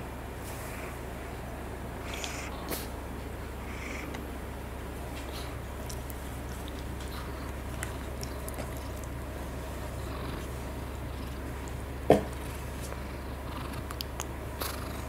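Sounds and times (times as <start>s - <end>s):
cat purring: 2.0s - 2.9s, 3.6s - 4.2s, 5.2s - 15.0s.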